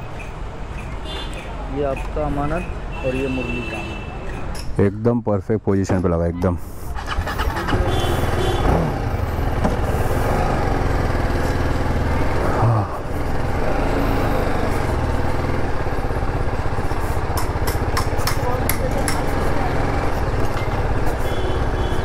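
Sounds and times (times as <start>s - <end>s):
motorcycle engine pulling away: 7.0s - 18.0s, 19.2s - 21.8s.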